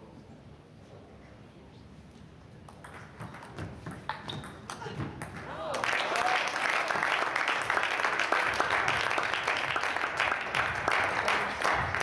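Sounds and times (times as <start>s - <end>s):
spectators applauding: 4.7s - 12.0s.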